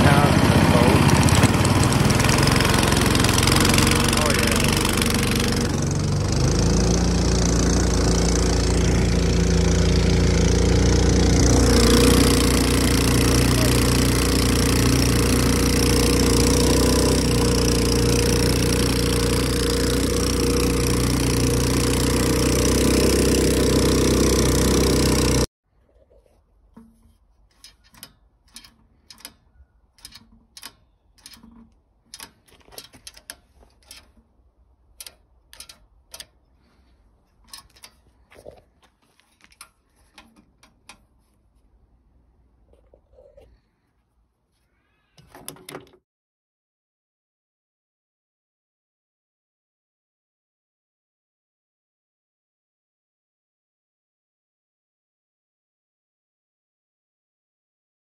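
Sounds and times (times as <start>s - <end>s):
boat motor engine running: 0.0s - 25.5s
throttle linkage clicks: 27.5s - 34.3s, 35.0s - 36.4s, 37.4s - 38.0s.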